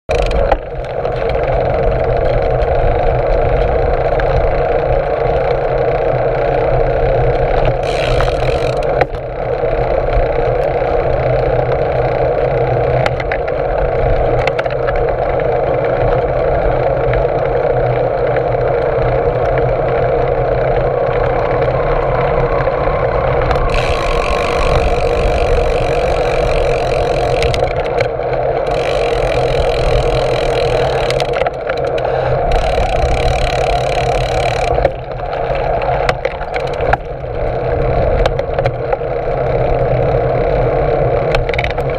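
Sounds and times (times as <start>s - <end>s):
bicycle tyres on road: 0.1s - 41.9s
wind rush: 19.1s - 38.3s.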